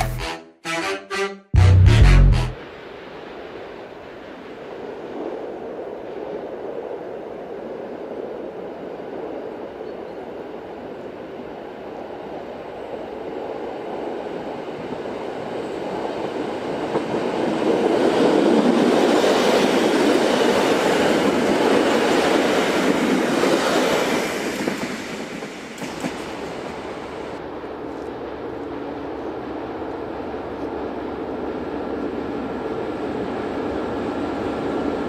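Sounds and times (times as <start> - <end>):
electric train passing on rails: 2.4 - 35.0.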